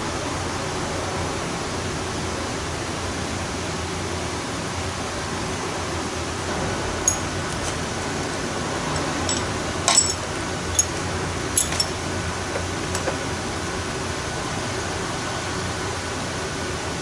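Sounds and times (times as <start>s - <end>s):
electric fan rushing: 0.0s - 17.0s
metal parts clinking: 9.0s - 11.0s, 11.6s - 12.0s.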